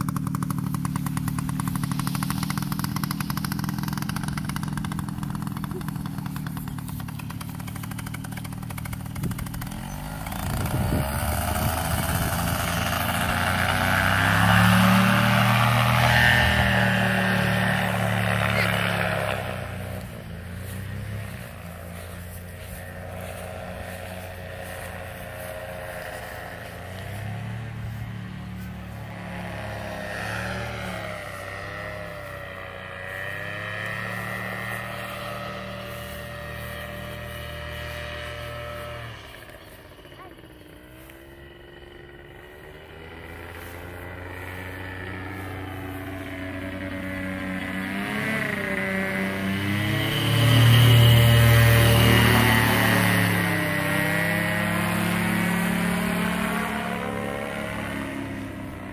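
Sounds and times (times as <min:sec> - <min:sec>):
paramotor engine droning: 0:00.0 - 0:58.9.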